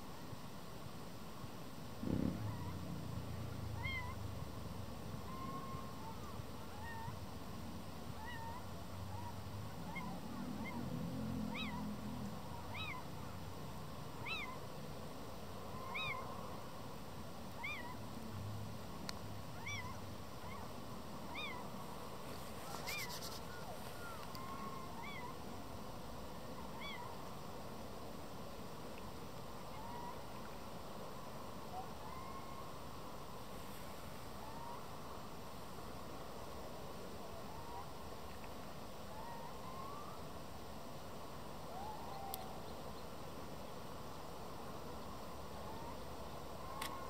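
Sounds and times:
owl mewing calls: 2.0s - 4.3s, 5.2s - 7.2s, 8.1s - 13.4s, 14.1s - 14.7s, 15.6s - 16.7s, 17.5s - 18.0s, 19.6s - 21.8s, 22.6s - 25.5s, 26.5s - 27.3s, 29.6s - 30.5s, 31.7s - 32.8s, 39.1s - 40.3s, 41.7s - 42.7s, 45.6s - 47.0s
fainter lower owl calls: 2.2s - 2.9s, 3.5s - 4.3s, 5.1s - 7.2s, 8.1s - 13.4s, 14.1s - 14.7s, 15.6s - 16.8s, 17.5s - 18.0s, 19.5s - 21.8s, 22.4s - 25.4s, 26.5s - 27.3s, 29.6s - 30.5s, 31.6s - 33.1s, 34.3s - 35.0s, 37.2s - 38.0s, 39.0s - 40.4s, 41.7s - 42.8s, 45.5s - 47.0s.

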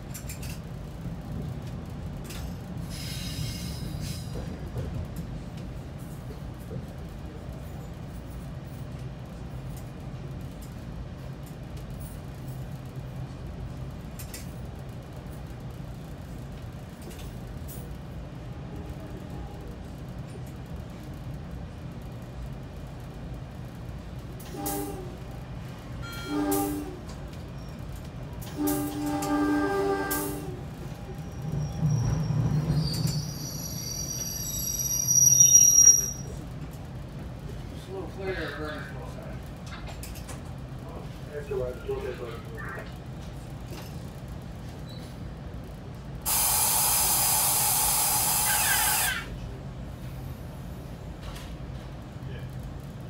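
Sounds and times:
train rumbling on rails: 0.0s - 53.0s
train horn blasts: 24.4s - 25.2s, 26.0s - 27.1s, 28.5s - 30.7s
compressed air hiss: 46.3s - 49.3s.

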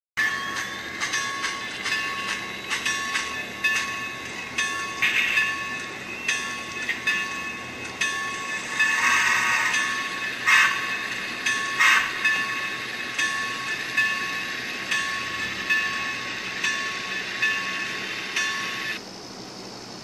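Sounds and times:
steam hiss from small speaker: 8.4s - 15.0s.

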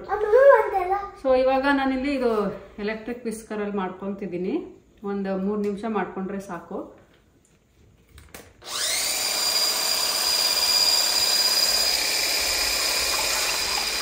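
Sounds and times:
electric whisk motor whining: 8.6s - 14.0s.

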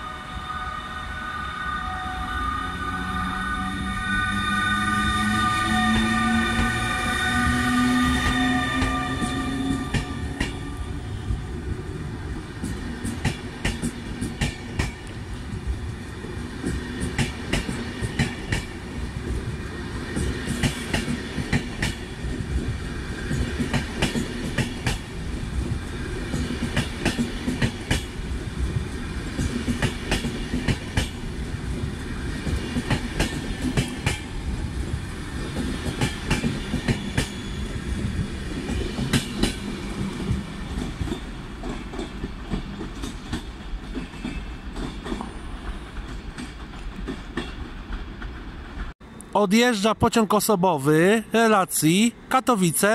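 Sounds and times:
train wheels clacking over joints: 12.6s - 15.1s, 32.4s - 34.3s, 38.6s - 48.9s.

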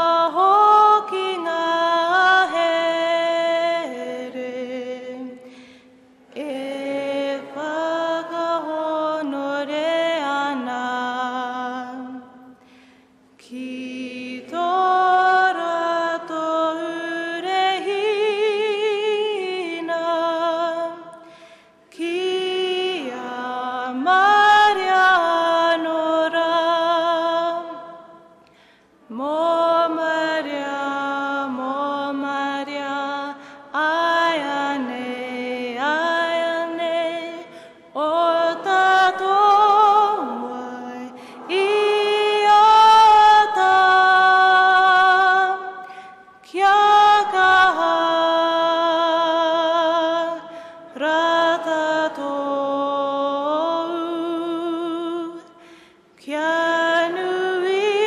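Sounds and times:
woman singing unaccompanied: 0.0s - 5.4s, 6.2s - 12.6s, 13.4s - 21.2s, 21.9s - 28.3s, 29.0s - 55.5s, 56.2s - 58.0s
singer breathing: 5.4s - 6.2s, 12.6s - 13.4s, 21.2s - 21.9s, 28.3s - 29.0s, 33.4s - 33.7s, 37.4s - 37.9s, 41.1s - 41.8s, 45.8s - 46.4s, 50.4s - 50.9s, 55.4s - 56.2s.

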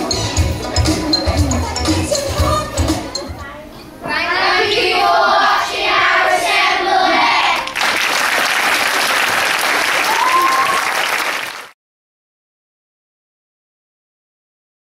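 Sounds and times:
children's voices: 0.9s - 7.8s
audience applauding: 7.6s - 11.8s.

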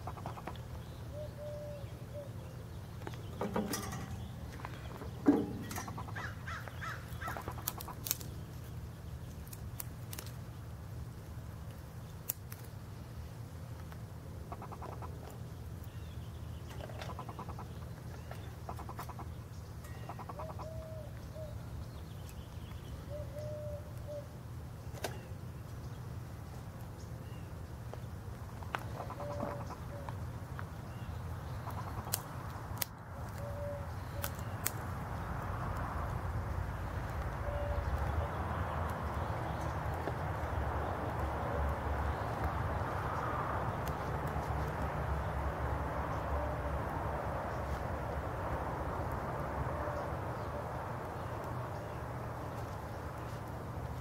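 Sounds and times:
harsh caw-like bird calls: 0.0s - 2.4s, 4.7s - 8.2s, 14.4s - 15.4s, 16.8s - 21.5s, 28.8s - 30.1s, 31.4s - 32.4s
low background hum: 0.0s - 54.0s.

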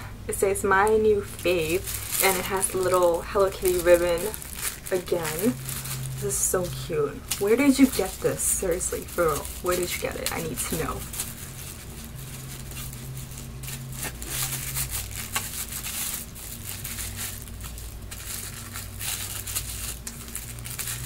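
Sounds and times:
gift wrapping paper crinkling: 0.8s - 21.0s.

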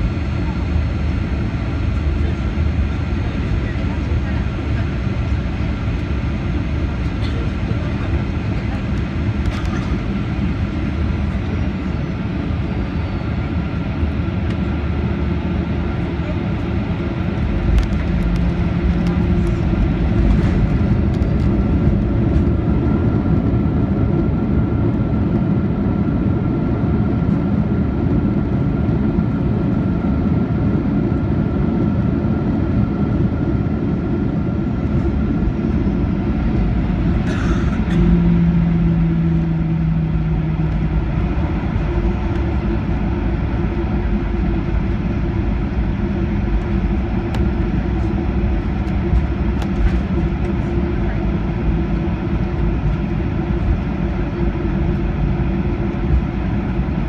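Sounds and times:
jet engines running: 0.0s - 57.0s.

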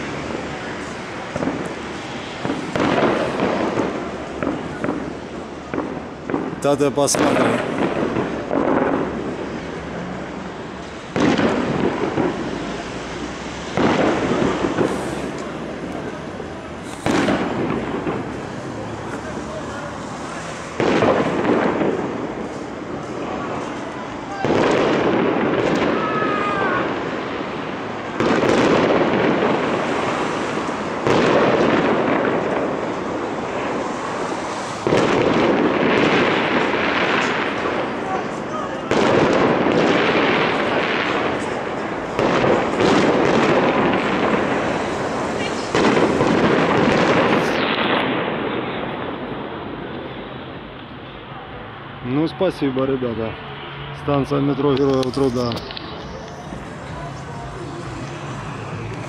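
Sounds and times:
fireworks crackling: 0.0s - 59.0s
fireworks shells bursting: 10.8s - 16.2s, 16.8s - 19.2s.

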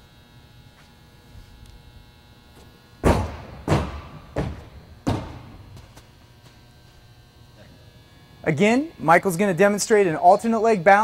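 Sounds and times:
loud footfall thuds echoing: 3.0s - 6.6s.

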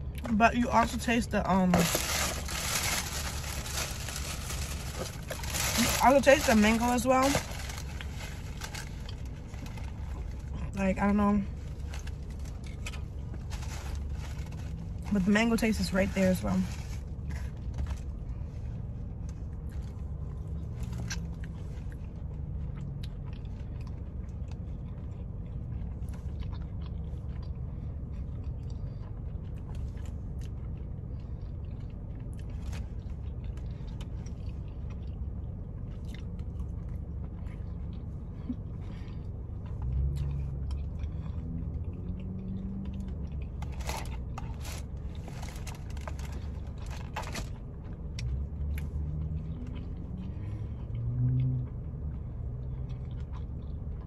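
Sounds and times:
steady low hum: 0.0s - 54.0s
person chewing chicken wings: 19.6s - 45.3s, 47.6s - 54.0s.

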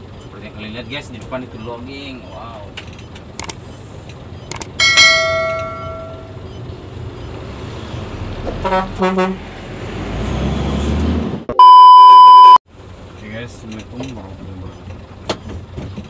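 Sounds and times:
truck engine rumbling: 0.0s - 11.5s, 12.7s - 16.0s
truck passing close by: 3.2s - 11.5s.

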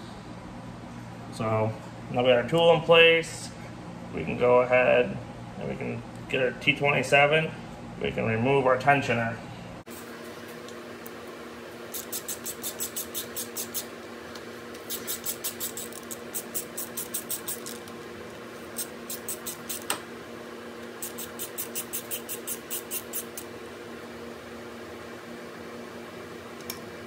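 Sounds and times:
background hum: 0.0s - 27.0s
hand ratchet clicking: 11.9s - 13.9s, 14.9s - 17.8s, 18.8s - 19.9s, 21.0s - 23.5s.

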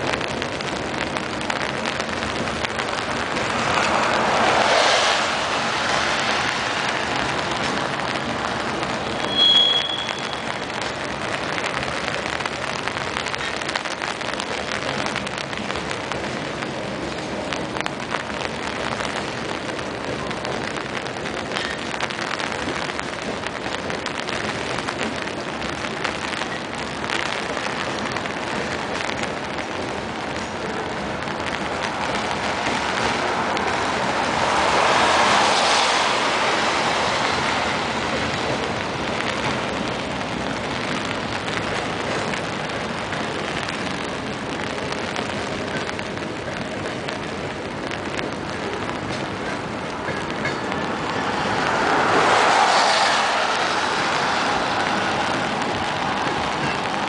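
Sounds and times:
freight train rolling past: 0.0s - 57.0s
heavy rain on an umbrella: 0.0s - 57.0s
short high squeal: 9.2s - 10.5s.

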